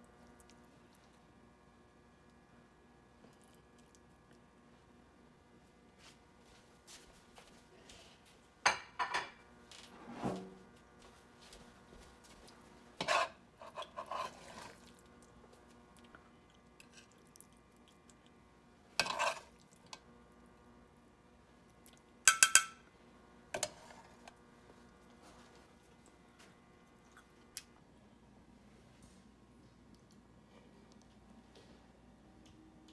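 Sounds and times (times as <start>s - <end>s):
metal spatula scraping a pan: 13.0s - 14.8s, 19.0s - 19.5s.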